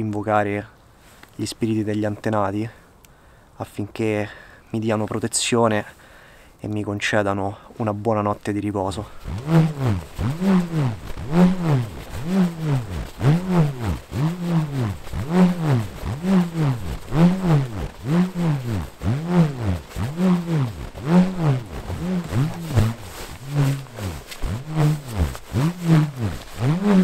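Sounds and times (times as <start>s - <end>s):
bull roarer whirring: 9.2s - 27.0s.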